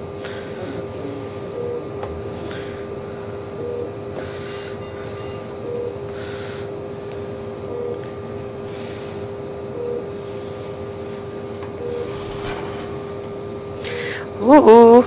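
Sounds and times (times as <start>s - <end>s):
medical equipment hum: 0.0s - 15.0s.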